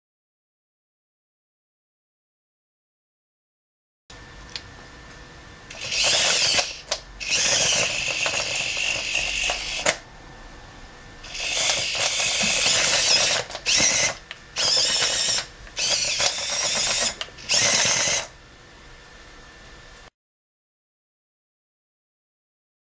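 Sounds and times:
small electric motors whining: 5.7s - 10.1s, 11.2s - 18.4s.

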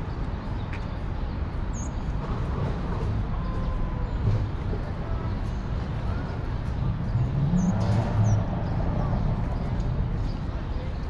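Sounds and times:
traffic rumble: 0.0s - 11.0s
passers-by talking: 3.2s - 11.0s.

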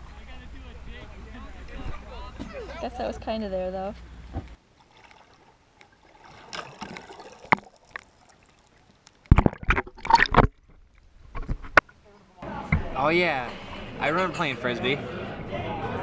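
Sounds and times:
river water gurgling: 4.2s - 11.4s.

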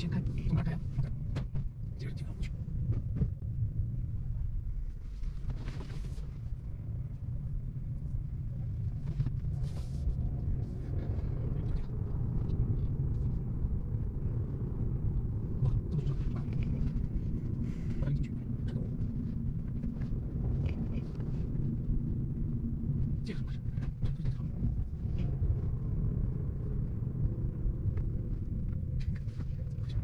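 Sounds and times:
road and engine rumble in car: 0.0s - 30.0s.

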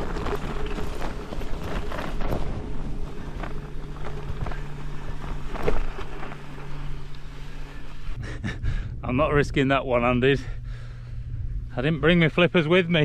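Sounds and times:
bike rattling and knocking: 0.0s - 7.2s
tyres crunching on dirt and stone: 0.0s - 8.1s
steady low hum: 0.0s - 13.0s.

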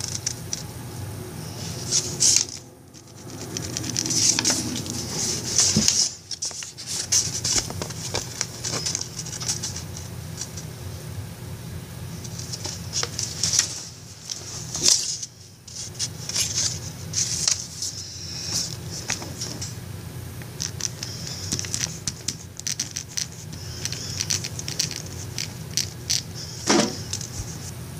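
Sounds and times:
paper sheets being handled: 1.4s - 10.8s, 12.2s - 19.8s.

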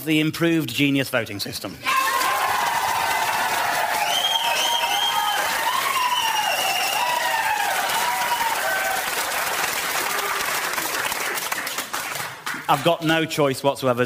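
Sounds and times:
audience applauding and cheering: 1.9s - 13.1s.

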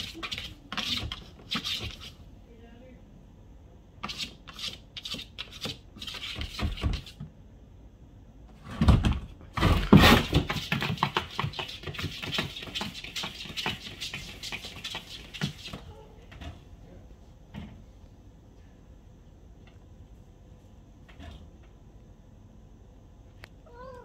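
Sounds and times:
cat claws scratching plastic: 0.0s - 2.2s, 4.0s - 7.2s, 9.7s - 15.8s.

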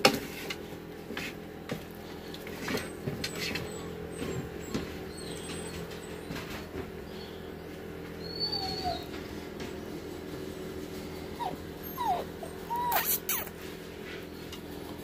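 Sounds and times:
puppy whimpering: 2.8s - 6.7s, 8.1s - 9.2s, 11.2s - 13.6s.

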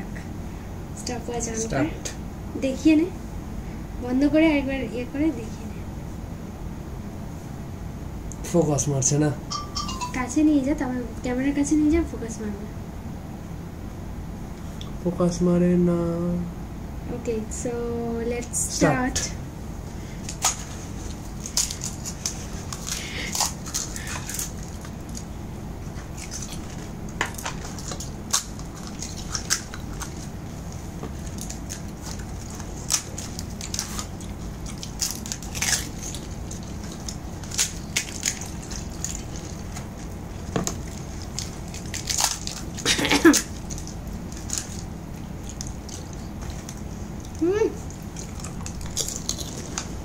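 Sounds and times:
steady low hum: 0.0s - 50.0s
crisp shells cracking and crunching: 20.2s - 25.3s, 25.9s - 50.0s.

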